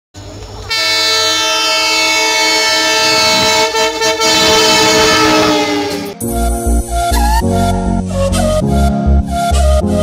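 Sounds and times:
locomotive air horn blast: 0:00.7 - 0:06.3.

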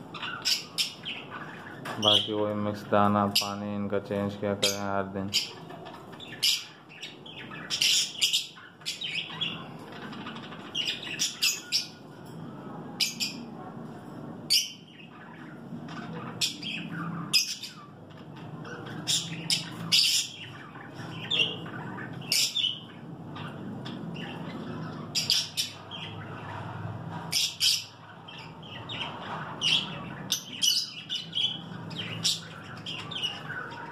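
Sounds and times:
birds chirping and squawking: 0:00.0 - 0:33.9.

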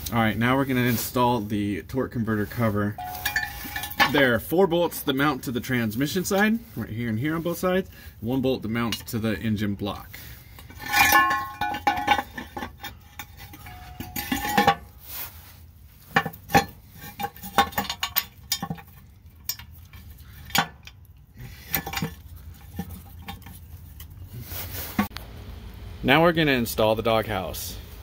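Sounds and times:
metal cover clinking and scraping: 0:02.9 - 0:06.8, 0:08.6 - 0:09.3, 0:10.2 - 0:15.4, 0:16.0 - 0:25.1.

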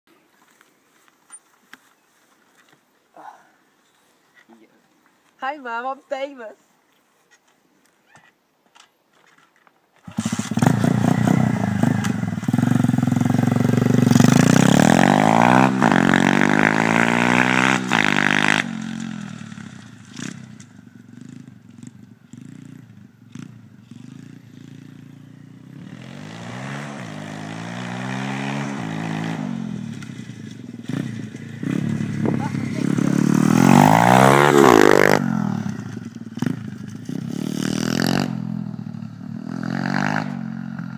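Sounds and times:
pit bike engine revving: 0:10.1 - 0:40.9.

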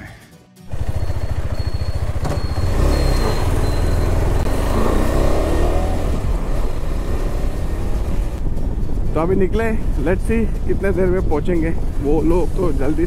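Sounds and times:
motorcycle engine accelerating: 0:00.7 - 0:08.9.

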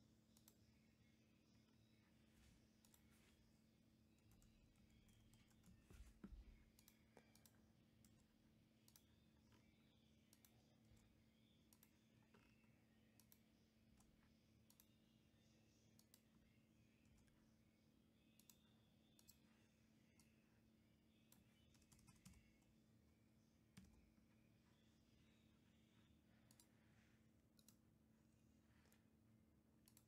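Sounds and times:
low steady hum: 0:00.0 - 0:30.0
keyboard and mouse clicks: 0:04.1 - 0:15.0, 0:18.3 - 0:19.4, 0:26.5 - 0:26.7, 0:27.5 - 0:27.9, 0:29.8 - 0:30.0.

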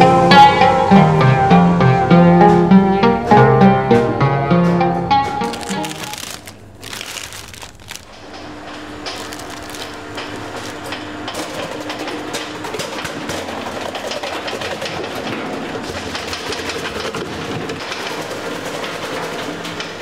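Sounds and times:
kitchen machine motor hum: 0:05.4 - 0:20.0.

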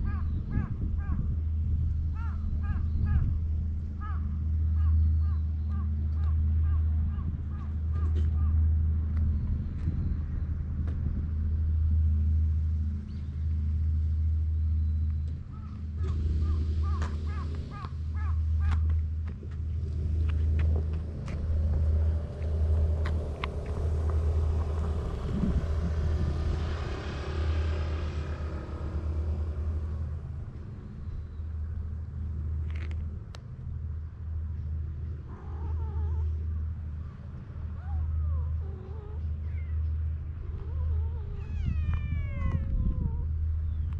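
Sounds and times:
wind buffeting microphone: 0:00.0 - 0:04.7, 0:06.4 - 0:12.2, 0:15.4 - 0:33.8, 0:40.3 - 0:43.9.

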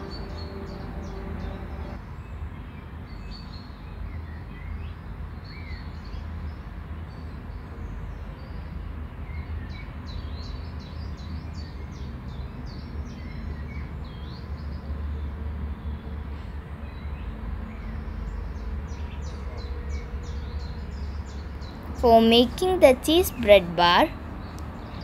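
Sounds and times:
steady low hum: 0:00.0 - 0:02.0
small birds chirping: 0:00.0 - 0:02.4, 0:16.8 - 0:25.0.

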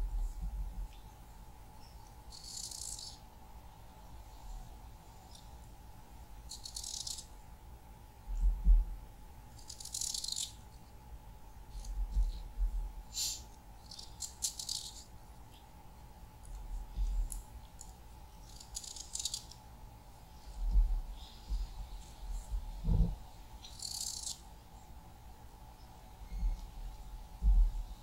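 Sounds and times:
dull low thumps: 0:20.6 - 0:23.3, 0:27.4 - 0:28.0.

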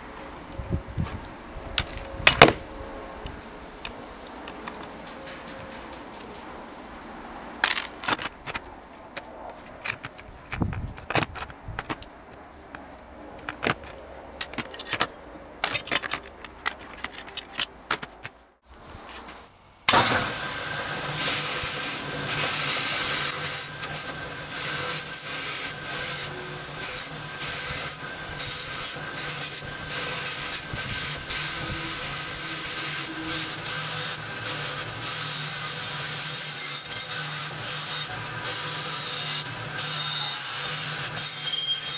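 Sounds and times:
metal pick scraping iron parts: 0:01.8 - 0:02.6, 0:04.4 - 0:18.4
wire brush wheel scraping rust: 0:04.4 - 0:18.4, 0:21.2 - 0:41.9.

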